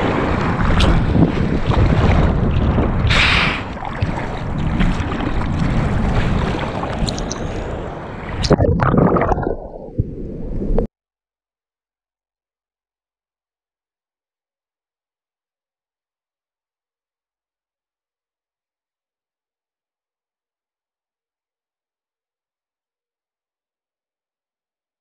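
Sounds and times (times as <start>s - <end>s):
water rushing and splashing: 0.0s - 10.9s
wind buffeting microphone: 0.0s - 10.9s.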